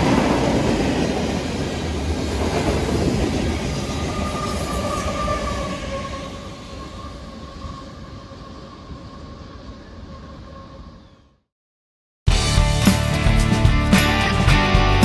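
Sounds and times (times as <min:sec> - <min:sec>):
freight train passing: 0:00.0 - 0:11.4
rumble of wheels on rails: 0:00.0 - 0:11.4.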